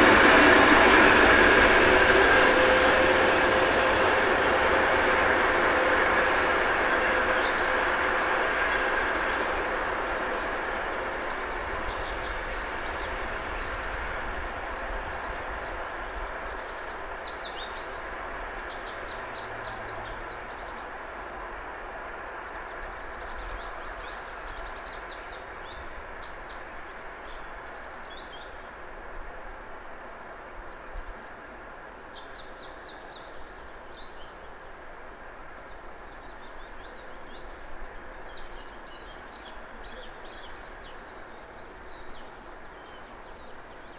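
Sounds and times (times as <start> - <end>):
diesel locomotive rumbling: 0.0 - 26.7.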